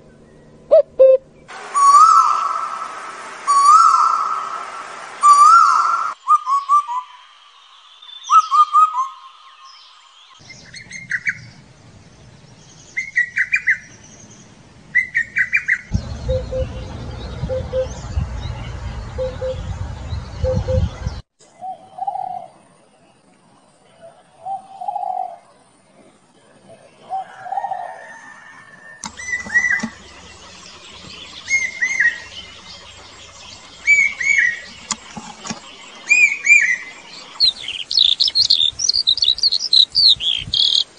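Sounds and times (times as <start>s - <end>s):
cuckoo four-note descending call: 0.7s - 7.2s, 15.9s - 19.6s
low rumble: 15.9s - 21.3s
cuckoo low paired hoops: 29.0s - 33.2s.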